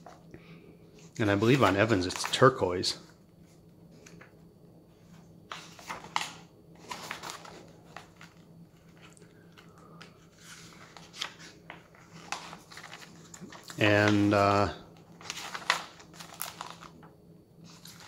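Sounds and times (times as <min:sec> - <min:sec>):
paper pages rustling: 0:00.0 - 0:00.2, 0:01.0 - 0:04.3, 0:05.0 - 0:18.0.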